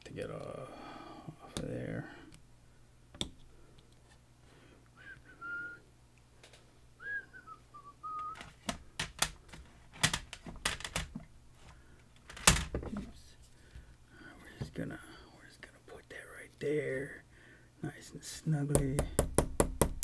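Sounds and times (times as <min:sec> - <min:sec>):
person whistling: 0:05.0 - 0:05.9, 0:07.0 - 0:08.4.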